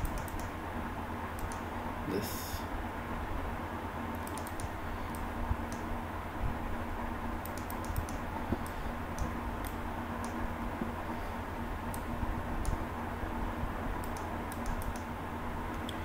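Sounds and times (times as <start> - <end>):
computer mouse clicks: 0.0 - 0.5, 1.4 - 1.6, 4.1 - 5.9, 7.4 - 10.4, 11.9 - 12.8, 14.0 - 15.1
low electrical hum: 0.0 - 16.0.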